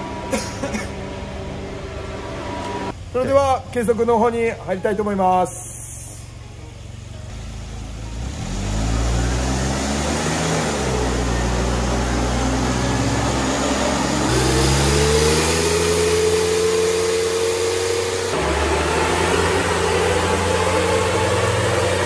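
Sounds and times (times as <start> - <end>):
car engine revving under load: 6.4 - 22.0.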